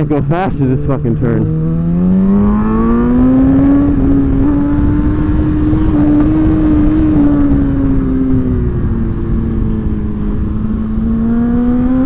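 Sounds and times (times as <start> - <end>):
motorcycle engine accelerating: 0.0 - 12.0
wind rushing over microphone: 0.0 - 12.0.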